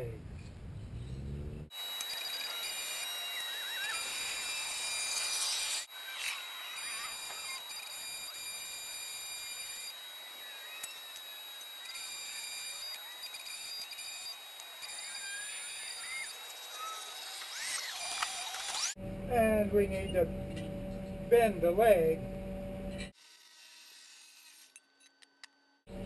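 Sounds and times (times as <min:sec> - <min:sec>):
arc welding crackling hiss: 0:01.7 - 0:19.0.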